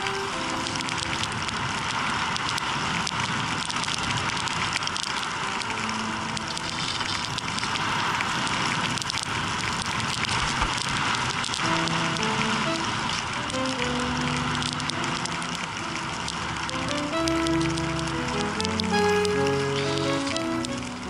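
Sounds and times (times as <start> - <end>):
skis hissing over snow: 0.0 - 3.6, 5.1 - 9.6, 10.4 - 15.8.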